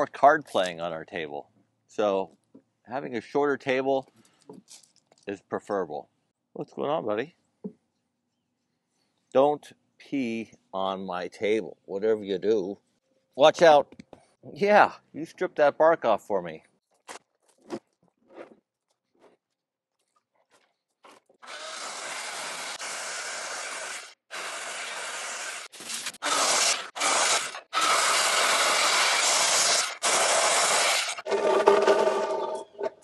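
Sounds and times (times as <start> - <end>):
circular saw cutting wood: 21.4 - 33.0.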